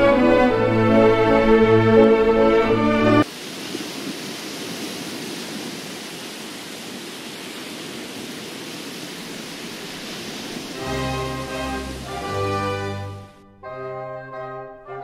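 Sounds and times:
music: 0.0 - 3.2, 10.8 - 15.0
steady rushing noise: 3.2 - 13.2.

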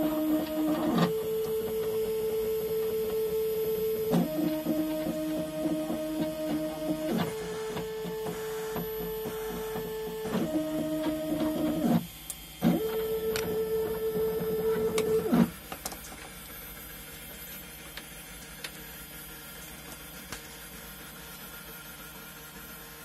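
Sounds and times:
stepper motors whining: 0.0 - 15.6.

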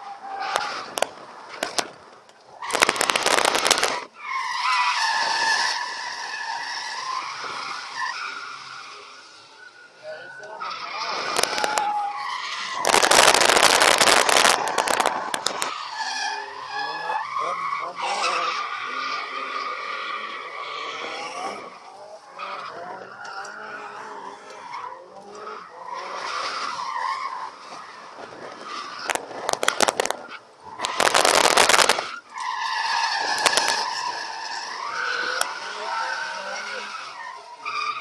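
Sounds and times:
sharp crackles: 0.4 - 4.1, 11.2 - 12.0, 12.6 - 15.8, 28.6 - 32.2, 33.2 - 34.2
loud rushing blast: 2.7 - 4.1, 12.8 - 15.7.

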